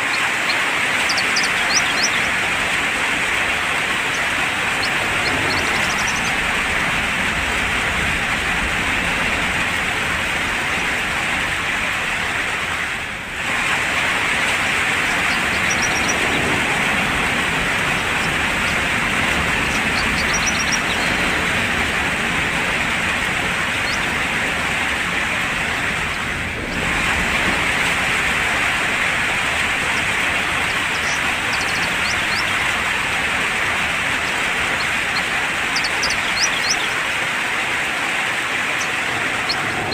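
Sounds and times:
faint bird chirps: 0.0 - 2.5, 3.9 - 6.4, 15.0 - 16.4, 17.8 - 21.5, 34.2 - 37.0
heavy rain falling: 0.0 - 39.9.

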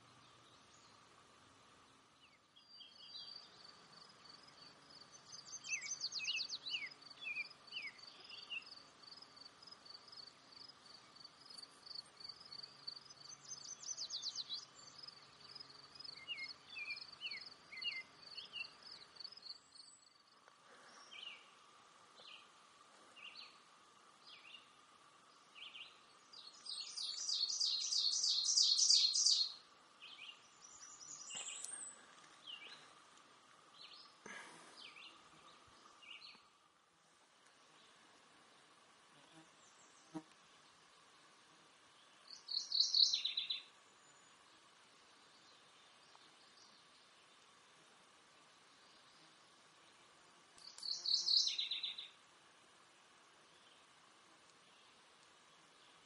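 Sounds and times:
buzzy fast-pulsed bird song: 2.0 - 9.3, 9.9 - 20.3, 25.4 - 32.0, 42.2 - 44.4, 50.7 - 52.2
warblers singing: 26.7 - 29.5.

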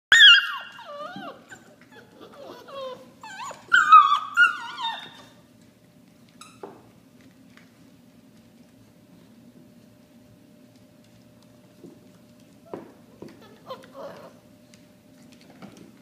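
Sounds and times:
puppies whining and yelping: 0.1 - 5.4, 13.2 - 14.4.

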